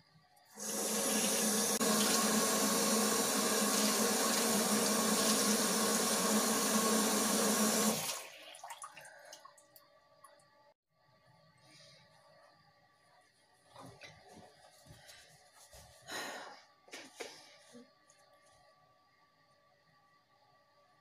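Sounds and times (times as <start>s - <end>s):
small splashes: 8.0s - 9.8s.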